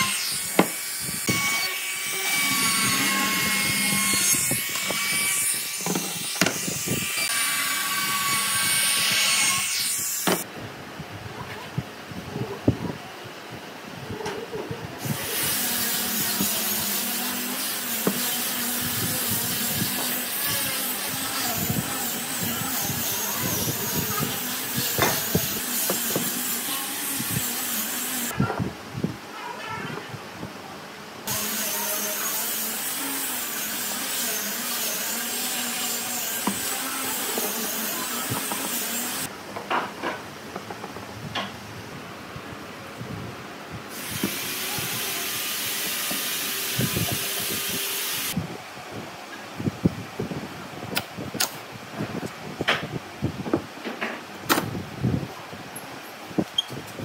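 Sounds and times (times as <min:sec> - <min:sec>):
power tool hissing: 0:00.0 - 0:08.4, 0:15.0 - 0:28.3, 0:43.9 - 0:48.4.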